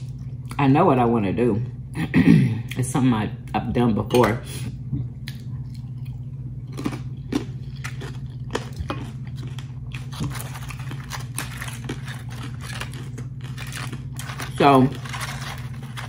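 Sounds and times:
steady low hum: 0.0s - 16.0s
person chewing chips: 5.1s - 16.0s.

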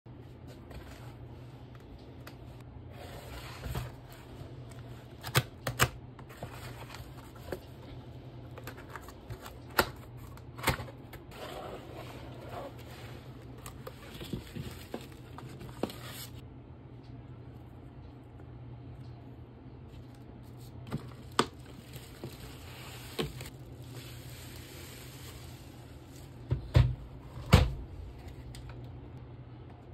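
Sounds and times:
cardboard scraping and rustling: 11.3s - 16.4s.

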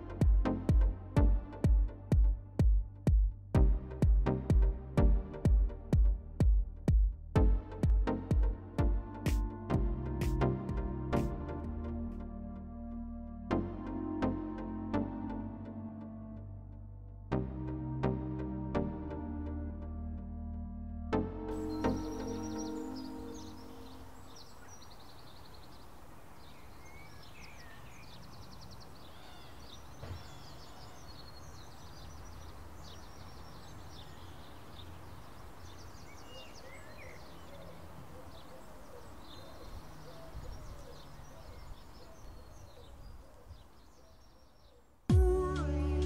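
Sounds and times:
small birds chirping and trilling: 21.5s - 45.1s.

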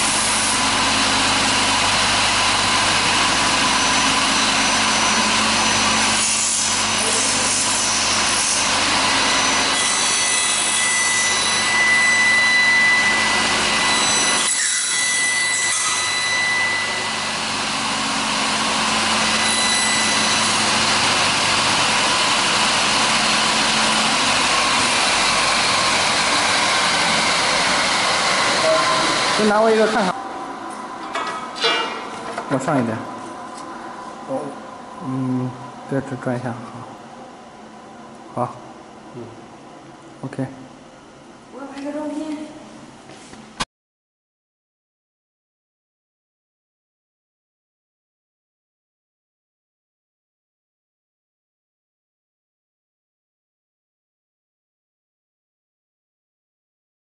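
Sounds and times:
milling machine motors running: 0.0s - 14.6s, 15.9s - 36.2s
high machine whine: 0.0s - 41.6s.

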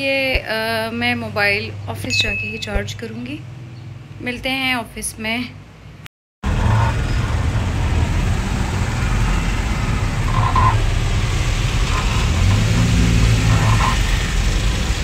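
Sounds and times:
van engine and road rumble: 5.6s - 15.0s.

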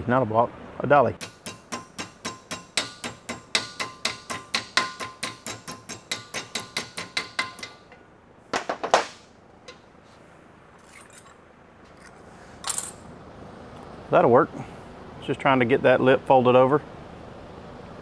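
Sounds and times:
hammer striking sheet metal: 1.2s - 8.0s, 8.6s - 9.9s
metal clanks: 1.2s - 9.9s.

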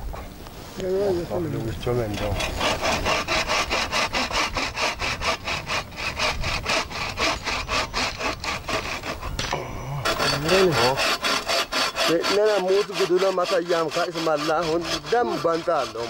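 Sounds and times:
bow saw cutting wood: 2.1s - 16.0s.

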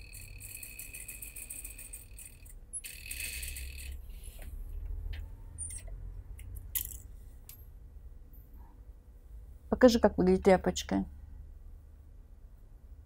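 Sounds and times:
sewing machine stitching: 0.0s - 4.0s.

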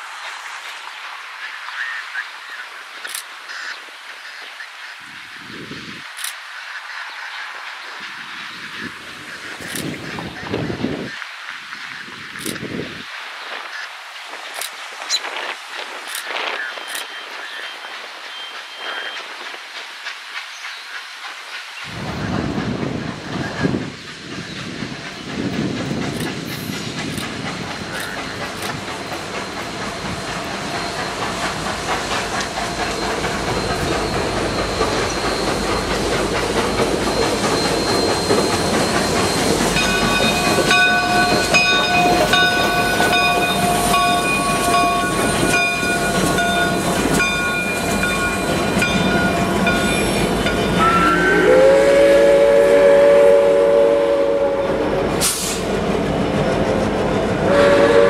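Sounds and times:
steam locomotive hiss and running: 0.0s - 58.0s
bell ringing: 37.1s - 50.9s
steam whistle: 50.8s - 55.6s, 57.4s - 58.0s.

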